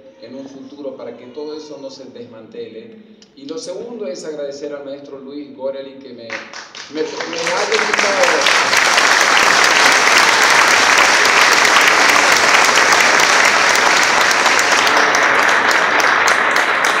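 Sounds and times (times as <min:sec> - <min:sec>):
audience applauding: 0:06.3 - 0:17.0.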